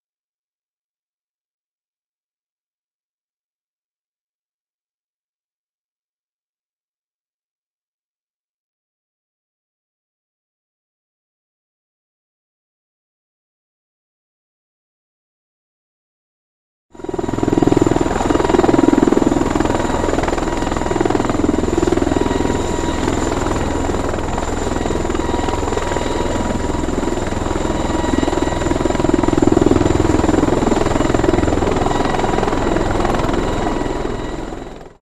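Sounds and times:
loud rotor noise: 17.0s - 35.0s.

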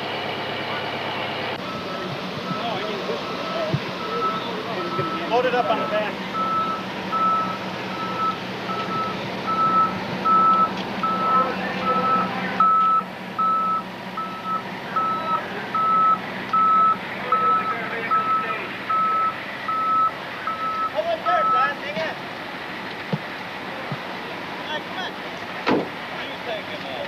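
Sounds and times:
engine humming: 0.0s - 27.0s
reversing alarm beeping: 1.6s - 21.8s.

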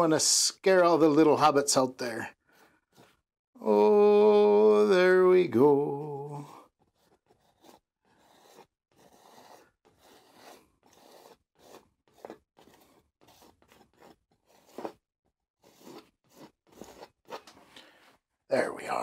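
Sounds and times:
palette knife scraping canvas: 2.3s - 3.2s, 6.4s - 18.3s.

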